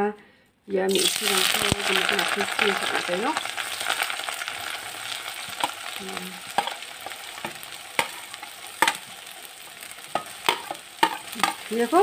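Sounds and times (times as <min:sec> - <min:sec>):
vegetables sizzling in hot oil: 0:00.8 - 0:12.0
spatula knocking against pan: 0:10.1 - 0:11.6.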